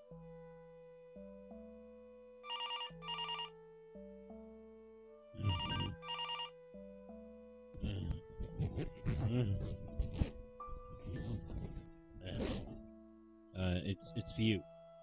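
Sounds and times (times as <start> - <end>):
soft background music: 0.0 - 15.0
telephone ringing: 2.4 - 3.5, 5.4 - 6.5.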